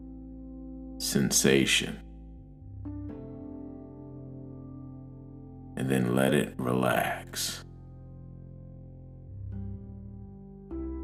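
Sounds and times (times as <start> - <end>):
soft ambient music: 0.0 - 11.0.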